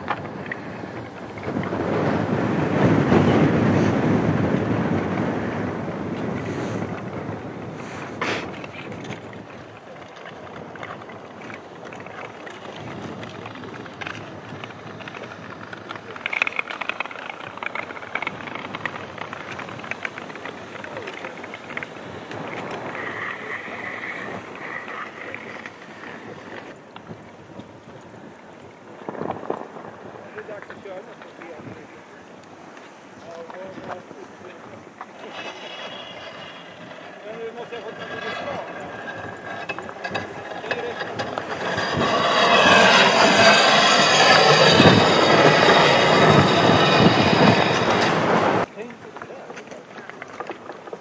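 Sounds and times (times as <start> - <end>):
ice yacht runners on ice: 0.0 - 51.0
wind blowing across microphone: 0.0 - 51.0
high steady whine: 35.0 - 48.7.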